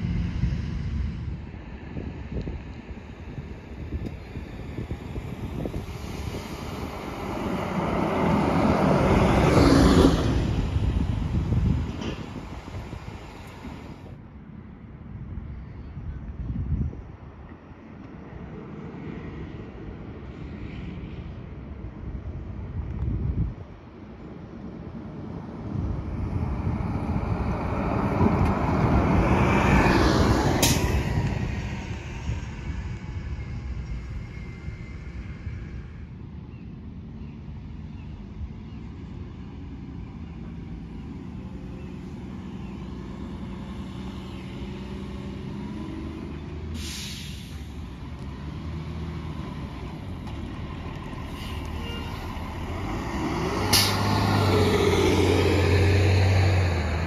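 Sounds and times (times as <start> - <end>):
buses driving past: 0.0 - 57.0
tyres on asphalt: 0.0 - 57.0
air brake hisses: 46.7 - 47.7.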